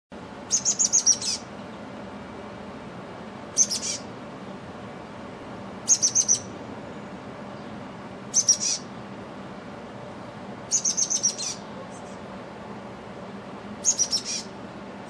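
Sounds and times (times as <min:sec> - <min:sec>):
chickadee calling: 0:00.4 - 0:01.5, 0:03.5 - 0:04.2, 0:05.8 - 0:06.6, 0:07.6 - 0:09.0, 0:10.6 - 0:12.3, 0:13.8 - 0:14.6.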